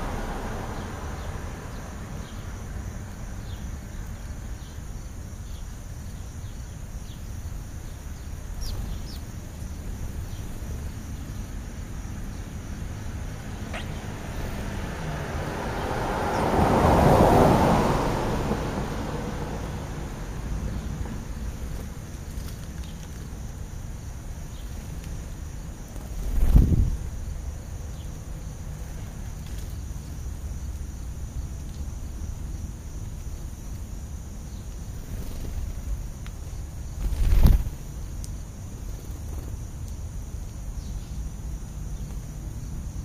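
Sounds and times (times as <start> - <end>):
vehicle passing: 0.0 - 3.2, 12.2 - 22.0
wind rumble on microphone: 25.4 - 27.6.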